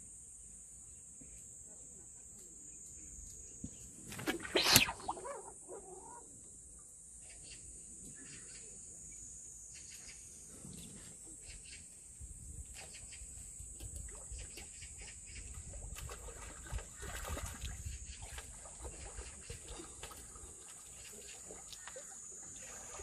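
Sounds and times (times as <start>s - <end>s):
fish splashing in water: 4.1s - 5.4s.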